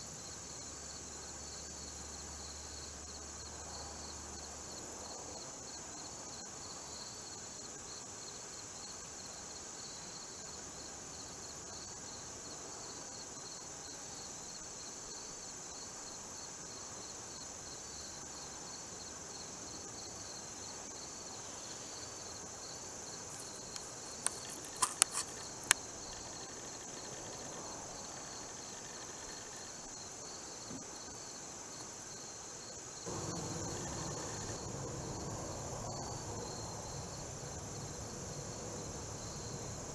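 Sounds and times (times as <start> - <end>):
insects chorusing: 15.2 - 39.9
rough background noise: 23.2 - 26.5
sharp clicks: 23.7 - 25.8.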